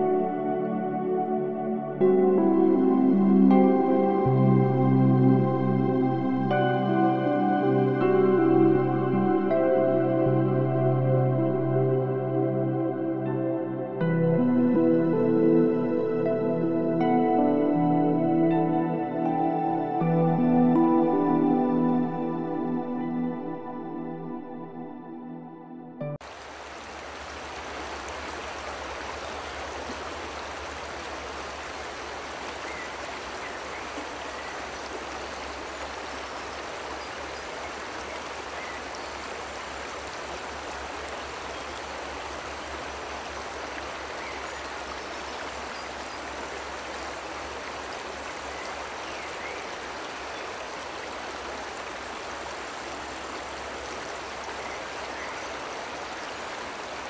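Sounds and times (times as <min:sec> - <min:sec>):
waterfall rushing: 0:26.2 - 0:57.0.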